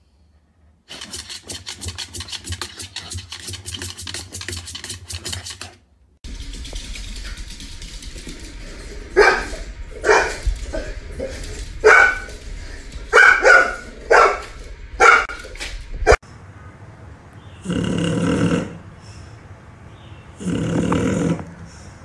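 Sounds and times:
small dog barking: 9.2s - 10.4s, 11.8s - 12.3s, 13.1s - 15.4s
dog snoring: 20.4s - 21.5s.

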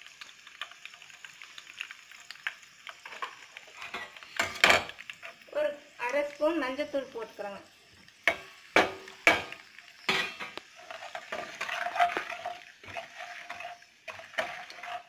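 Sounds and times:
light sizzle: 0.0s - 15.0s
spatula scraping pan: 8.2s - 15.0s
spatula knocking against pan: 8.3s - 9.6s.

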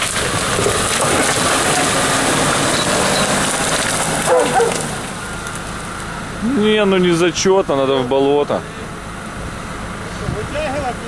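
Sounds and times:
engine running under load: 0.0s - 11.0s.

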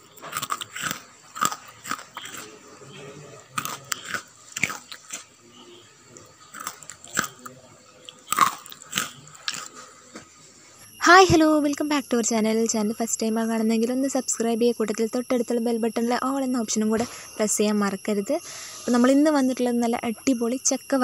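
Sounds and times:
crunching chips: 0.0s - 5.3s, 6.2s - 10.0s.

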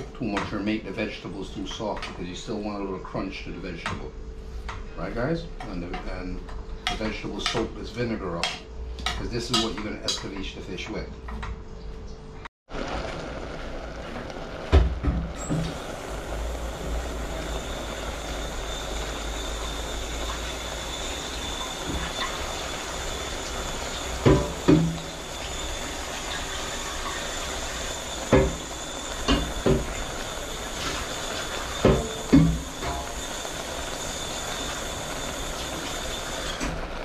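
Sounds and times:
pot simmering with bubbling hiss: 12.7s - 37.0s.

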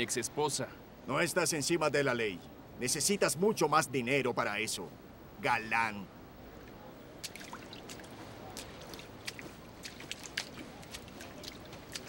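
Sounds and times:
faint steady water wash: 4.5s - 12.0s
water trickling and dripping: 7.2s - 12.0s.

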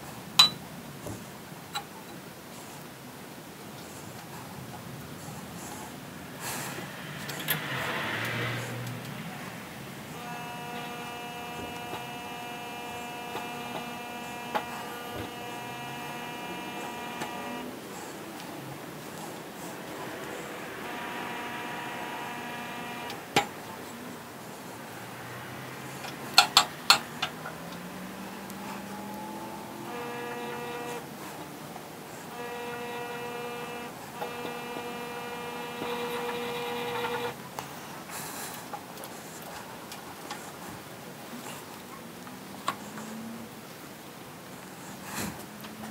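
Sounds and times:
steady electric hum: 5.1s - 25.2s, 25.8s - 37.5s
bead roller whine: 10.1s - 18.2s, 19.0s - 23.6s, 28.2s - 31.3s, 32.2s - 37.4s.

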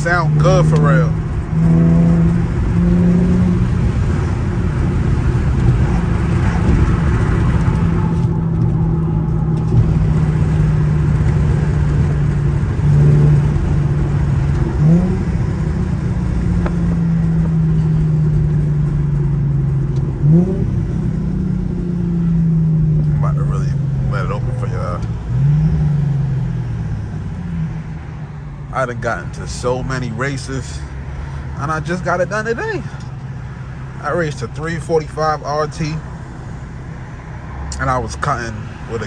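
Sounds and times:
car exhaust tone: 0.0s - 39.0s
tyre and road noise: 0.0s - 39.0s.

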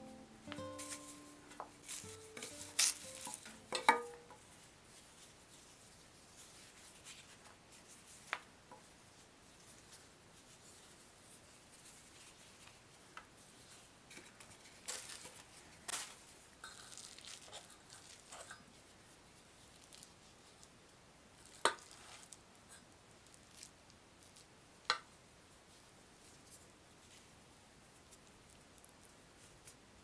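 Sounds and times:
soft rustling of dough: 0.7s - 30.0s.

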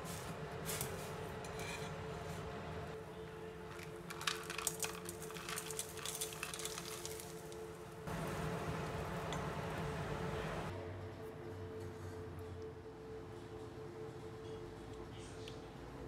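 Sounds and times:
sugar lumps clinking against metal: 3.7s - 7.6s
water boiling in a pot: 3.7s - 10.7s.

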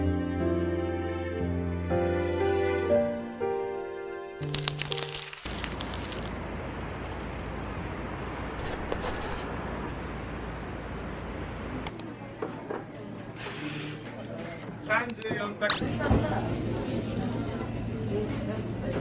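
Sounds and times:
city street ambience hiss: 4.4s - 12.1s
scattered clicks: 11.8s - 12.1s.

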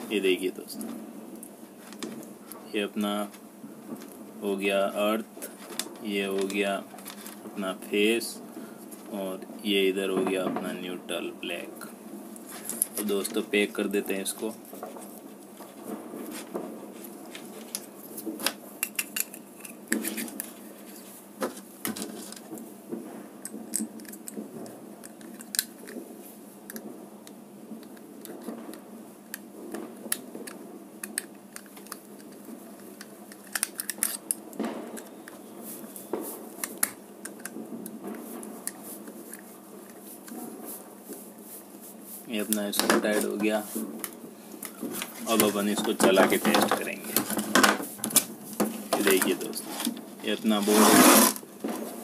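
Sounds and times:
sharp clicks and scrapes: 17.3s - 21.1s, 29.3s - 35.4s, 42.5s - 51.9s.

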